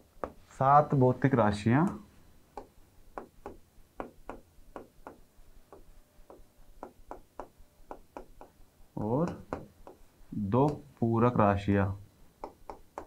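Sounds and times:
stylus tapping on glass: 2.6 - 10.0, 12.4 - 13.0.

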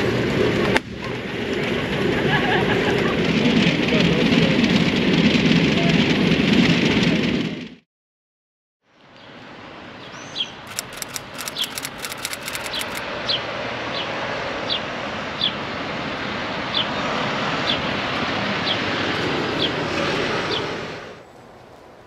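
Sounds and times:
quick clicks: 10.7 - 13.0.

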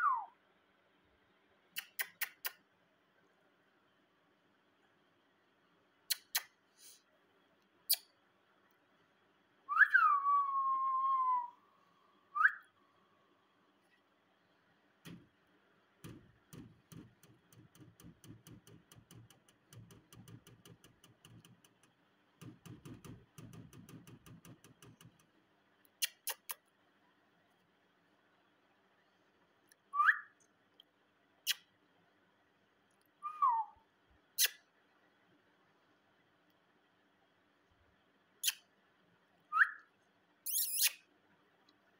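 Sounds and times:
rapid irregular tapping and rattling: 15.0 - 15.4, 16.0 - 25.4
sharp clicks: 16.0 - 25.4.

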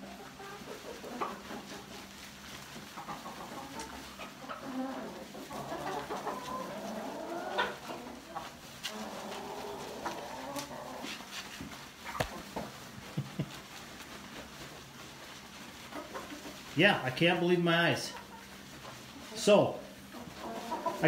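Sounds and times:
hens clucking: 0.0 - 21.0
sharp clicks and scuffs: 11.3 - 12.7.

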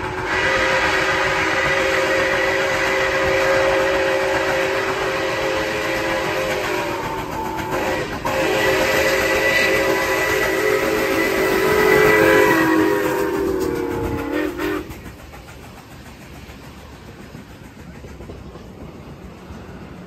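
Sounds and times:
steam whistle: 0.0 - 15.0
train cars rolling by: 0.0 - 20.0.

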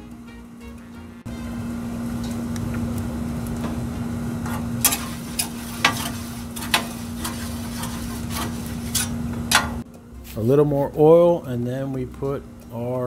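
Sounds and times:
hot oil sizzling: 0.0 - 9.8
steady low hum: 0.0 - 13.0
metal spatula scraping griddle: 4.4 - 9.8.

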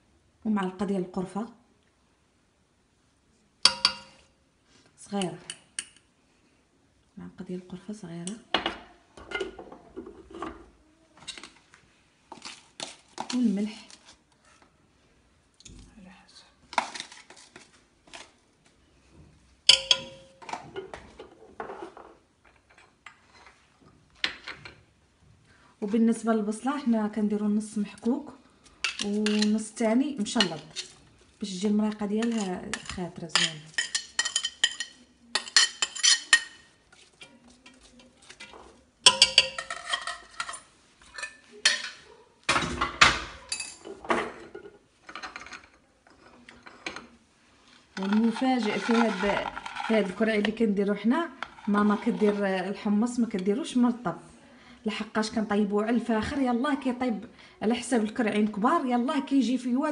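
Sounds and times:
kitchen utensils knocking and tapping: 3.6 - 4.3, 8.3 - 10.7, 19.7 - 23.0, 28.8 - 29.6, 31.9 - 36.6, 37.2 - 45.8, 48.0 - 50.6
metal utensil striking cooking pot: 3.7 - 4.2, 19.7 - 20.6.

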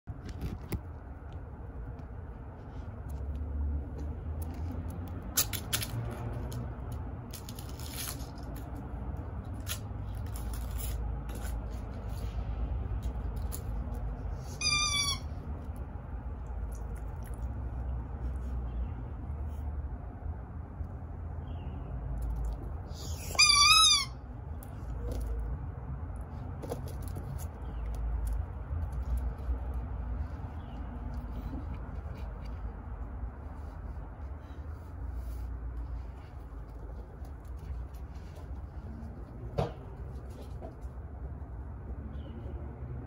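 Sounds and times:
low outdoor rumble: 0.0 - 43.0
light clicks and scrapes: 0.1 - 14.5, 24.6 - 41.4.

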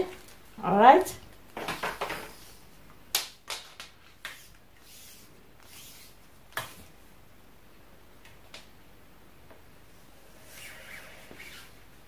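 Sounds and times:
fabric rustling: 10.4 - 12.0.

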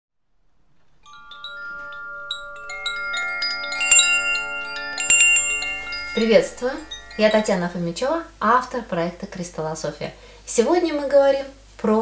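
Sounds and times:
chimes ringing: 1.0 - 8.0.

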